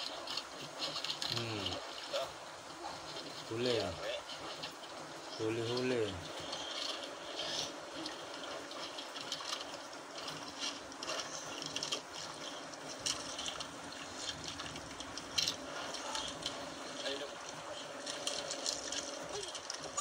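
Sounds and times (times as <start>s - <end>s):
water lapping against boat hull: 0.0s - 20.0s.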